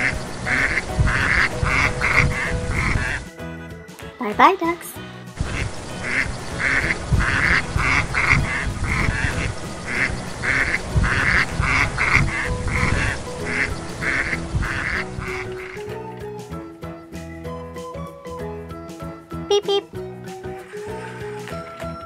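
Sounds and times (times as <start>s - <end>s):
ducks quacking: 0.0s - 3.3s, 4.6s - 15.8s
background music: 0.0s - 22.0s.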